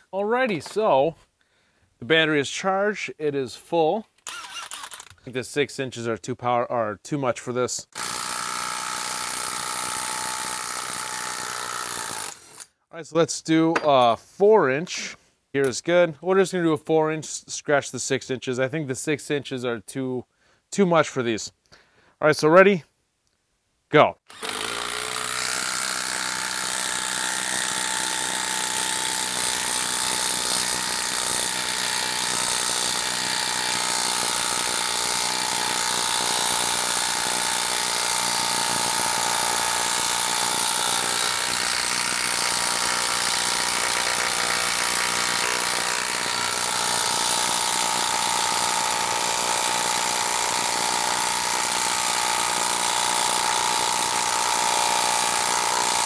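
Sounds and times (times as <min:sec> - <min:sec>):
impact driver hammering: 0:24.3 - 0:56.0.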